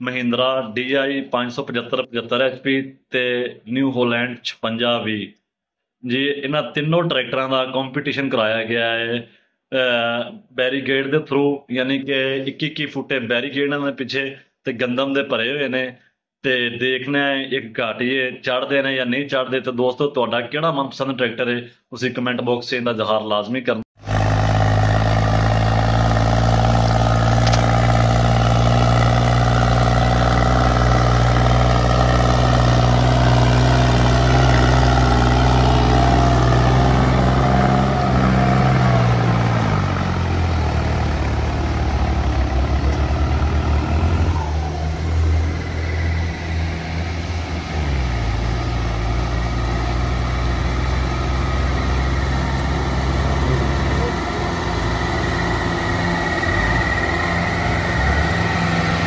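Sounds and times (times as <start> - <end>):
tractor diesel engine under load: 24.0 - 59.0.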